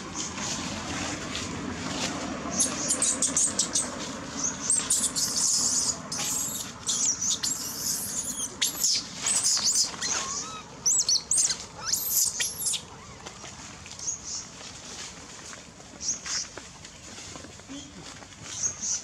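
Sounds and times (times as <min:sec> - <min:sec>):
baby monkey shrill squeals: 0:04.7 - 0:12.9.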